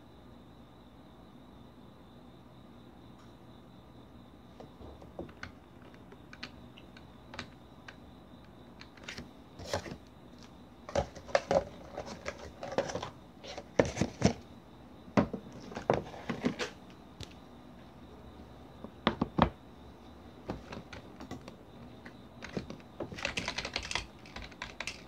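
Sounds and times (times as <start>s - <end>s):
computer keyboard typing: 5.3s - 8.0s, 20.6s - 25.0s.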